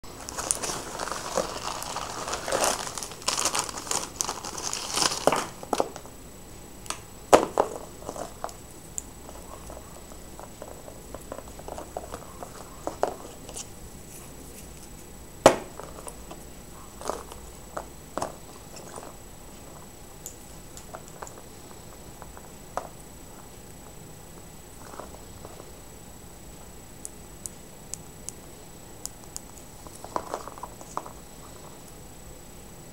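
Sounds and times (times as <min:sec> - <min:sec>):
plastic mailer crinkling: 0:00.0 - 0:06.1.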